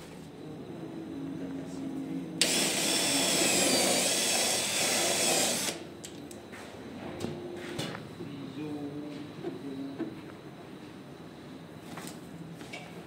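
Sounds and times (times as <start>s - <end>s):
faint steady hum: 0.0s - 13.0s
cordless drill boring into board: 2.4s - 5.8s.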